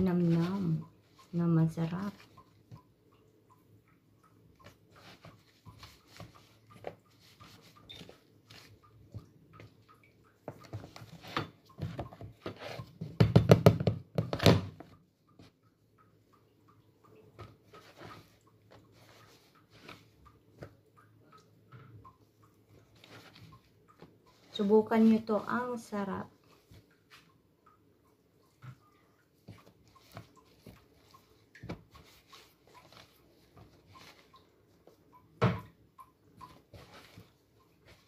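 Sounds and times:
thumps and rubbing on plastic tub: 0:00.0 - 0:02.8, 0:04.6 - 0:15.5, 0:29.4 - 0:35.7
hands patting flour coating: 0:00.0 - 0:02.9.

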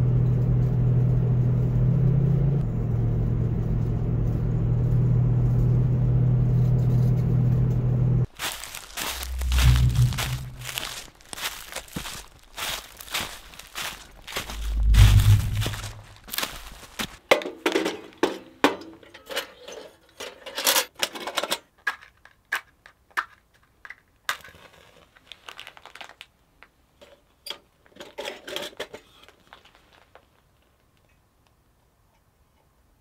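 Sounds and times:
rustling and crunching leaves: 0:08.2 - 0:17.2, 0:25.0 - 0:26.3.

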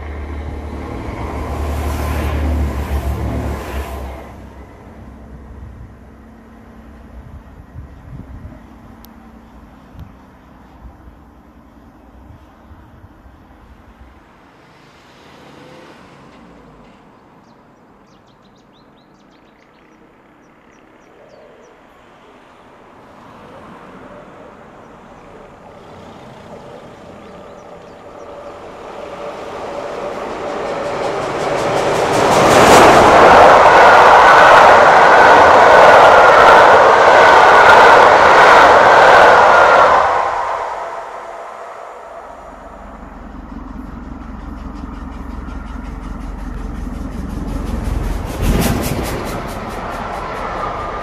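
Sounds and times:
steam train passing at speed: 0:00.0 - 0:51.0
wheels clicking over rail joints: 0:26.5 - 0:33.3, 0:43.1 - 0:51.0.

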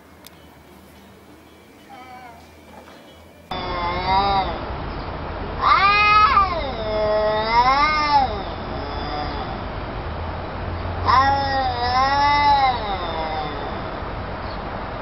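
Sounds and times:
cat yowling: 0:01.9 - 0:02.5, 0:03.5 - 0:04.6, 0:05.6 - 0:09.7, 0:11.0 - 0:14.0.

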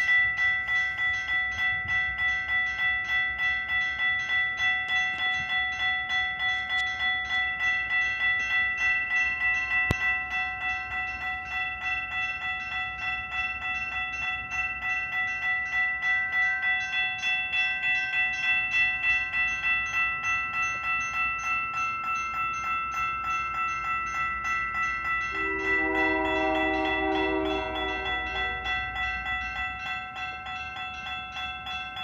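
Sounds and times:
railroad crossing bell ringing: 0:00.0 - 0:32.0
horn-like chord: 0:25.3 - 0:28.8.

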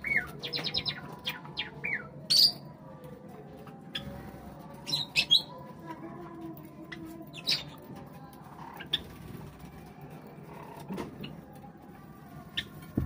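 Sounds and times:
sparrows chirping: 0:00.0 - 0:02.8, 0:03.9 - 0:05.8, 0:06.6 - 0:11.5.

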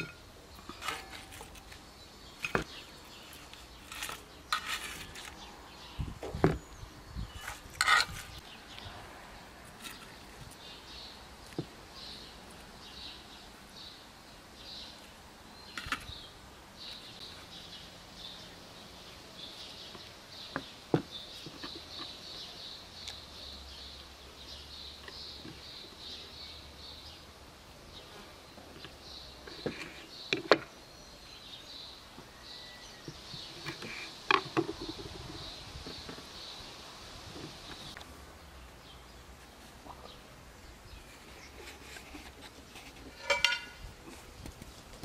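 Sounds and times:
bird chirping: 0:28.8 - 0:36.8
utensils clinking on dishes: 0:43.1 - 0:43.8.

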